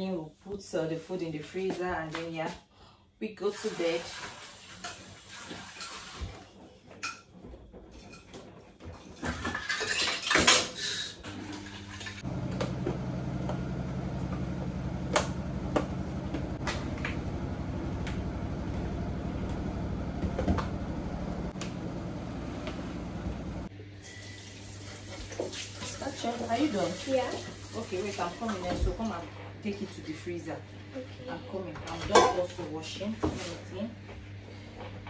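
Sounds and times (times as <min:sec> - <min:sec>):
dishes and plastic containers clattering: 0:04.9 - 0:11.0
low mechanical hum: 0:06.9 - 0:35.0.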